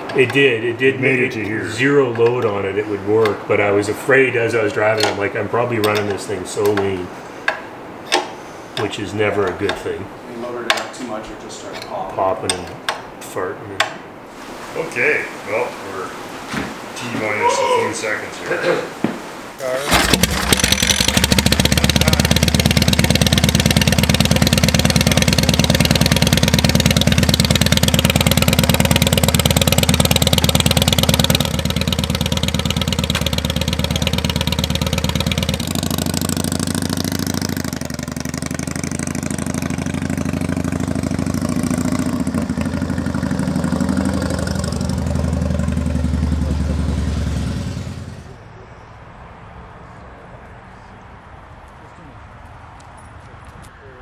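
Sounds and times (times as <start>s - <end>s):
vehicle engine running: 19.9s - 48.5s.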